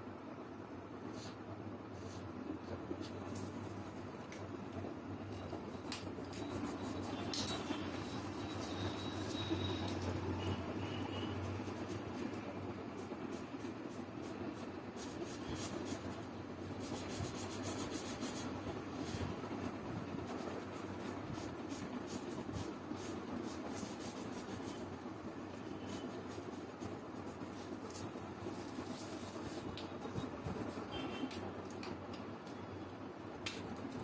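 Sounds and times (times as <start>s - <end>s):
marker scratching on paper: 1.1s - 1.4s, 2.0s - 3.7s, 6.1s - 19.4s, 20.2s - 31.3s.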